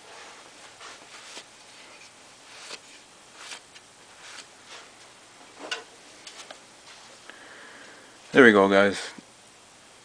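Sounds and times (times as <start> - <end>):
cloth rag rubbing on metal: 0.0 - 5.0.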